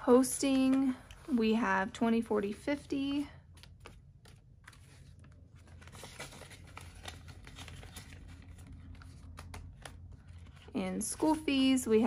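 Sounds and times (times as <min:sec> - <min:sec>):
paper bills rustling: 0:02.6 - 0:11.8.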